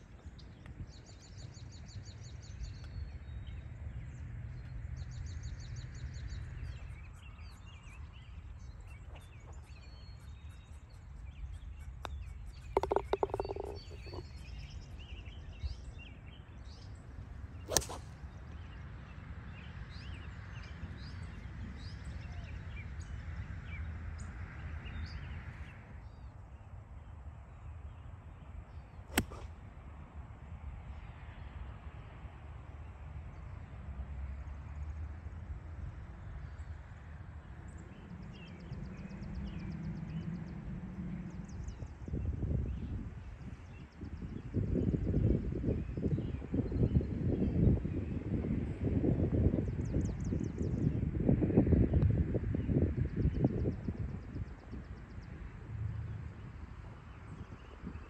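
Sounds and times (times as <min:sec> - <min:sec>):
birds singing: 0:00.2 - 0:23.8.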